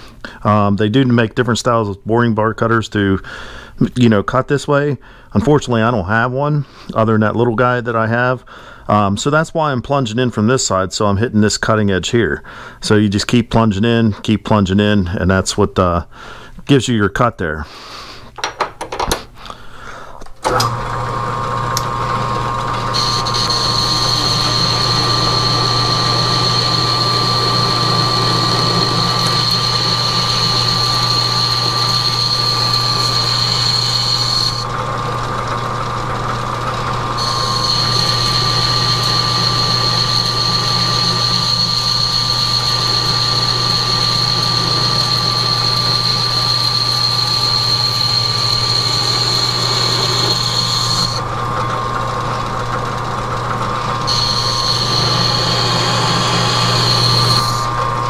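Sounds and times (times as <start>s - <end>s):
metal lathe motor hum: 20.4s - 58.0s
high-pitched cutting tone: 22.9s - 34.7s, 37.2s - 51.2s, 54.1s - 57.7s.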